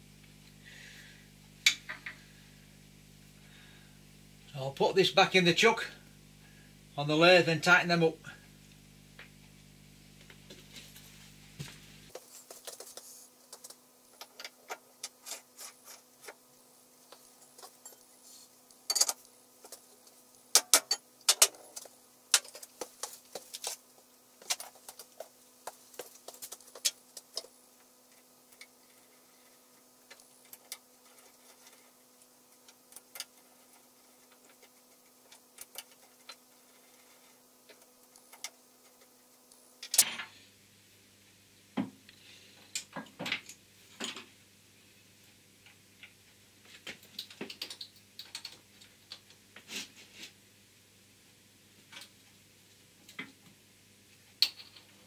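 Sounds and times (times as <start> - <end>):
faint steady hum: 0.0 - 55.0.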